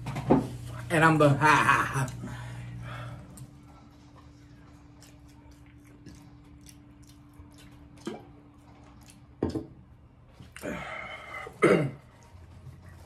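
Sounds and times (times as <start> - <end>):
person coughing: 11.3 - 12.1.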